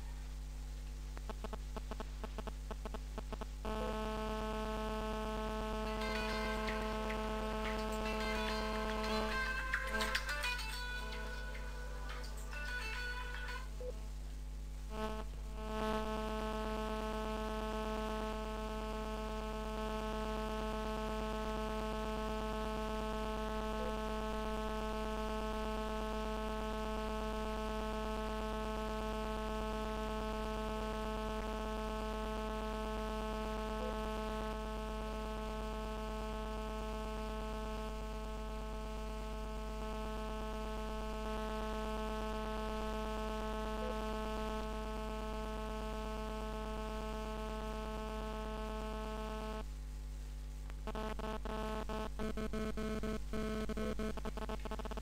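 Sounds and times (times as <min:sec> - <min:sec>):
electrical mains hum: 0:00.0 - 0:55.0.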